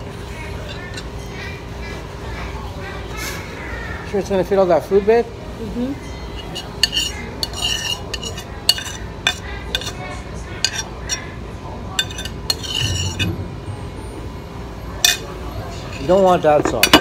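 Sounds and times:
cutlery and dishes clinking: 6.3s - 11.2s, 11.9s - 13.4s, 15.0s - 17.0s.

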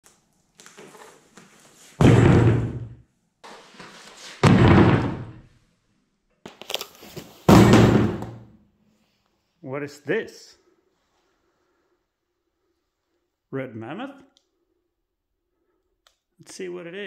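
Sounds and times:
heavy thumps: 2.0s - 3.0s, 4.4s - 5.5s, 7.5s - 8.6s.

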